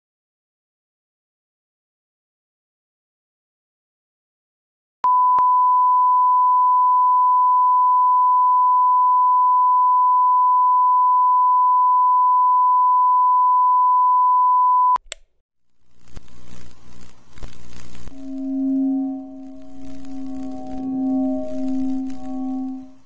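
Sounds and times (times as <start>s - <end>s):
steady test tone beep: 5.0s - 15.0s, 18.1s - 23.0s
click: 15.0s - 15.3s.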